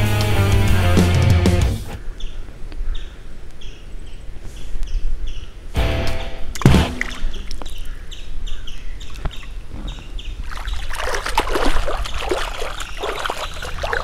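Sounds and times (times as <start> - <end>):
small birds chirping: 2.0 - 5.8, 7.1 - 14.0
foot kicking and splashing water: 6.6 - 7.7, 10.4 - 14.0
splash into pond water: 6.6 - 7.7, 10.4 - 14.0.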